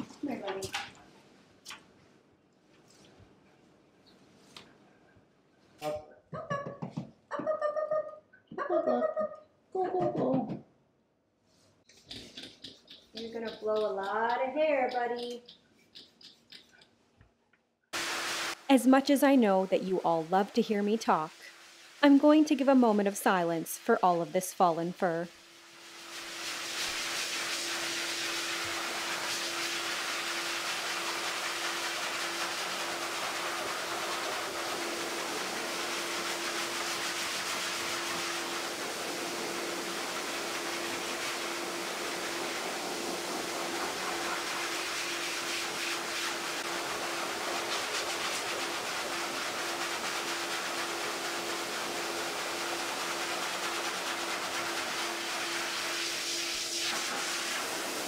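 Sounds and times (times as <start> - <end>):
pet dryer blowing air: 26.2 - 58.0.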